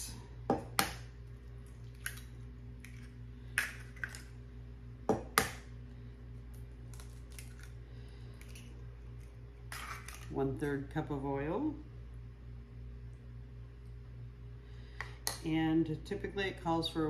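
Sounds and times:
steady low hum: 0:00.0 - 0:17.0
eggs cracking against bowl: 0:00.5 - 0:04.4, 0:06.5 - 0:10.4.

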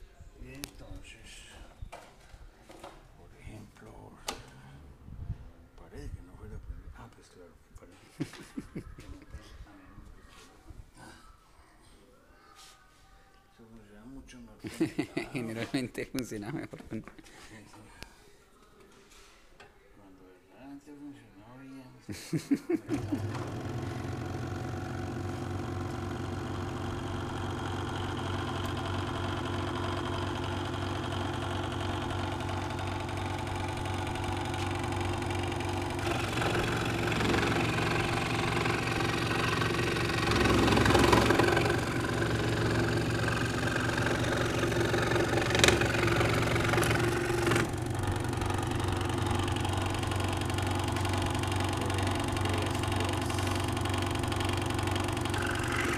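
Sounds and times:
saw cutting wood: 0:22.9 - 0:55.9
scroll saw running: 0:22.9 - 0:55.9.

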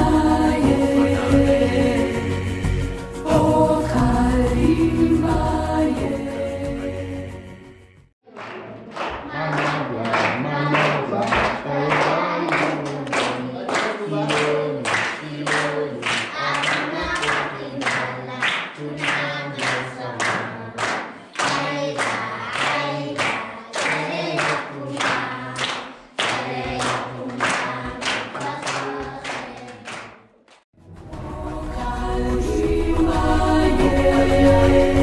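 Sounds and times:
background music: 0:00.0 - 0:08.1, 0:30.8 - 0:35.0
people clapping in time: 0:08.3 - 0:30.6
children singing in chorus: 0:09.0 - 0:29.8.

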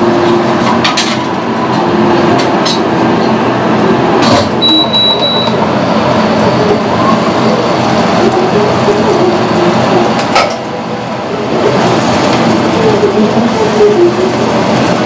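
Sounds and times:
high electronic beep: 0:04.6 - 0:05.6.

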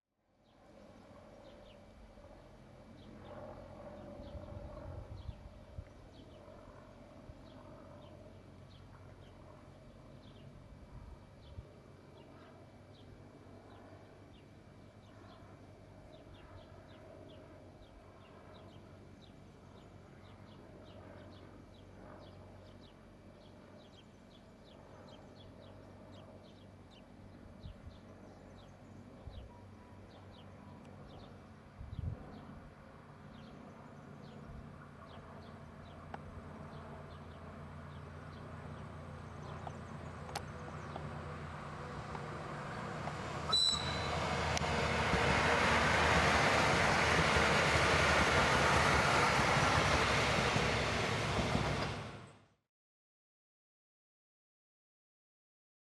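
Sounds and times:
train diesel engine hum: 0:37.0 - 0:52.4
short high chirps: 0:43.5 - 0:44.2.

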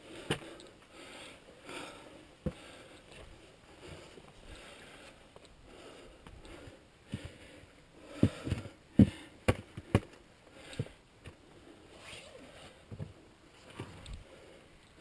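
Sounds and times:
clothing rustling: 0:11.9 - 0:14.2.

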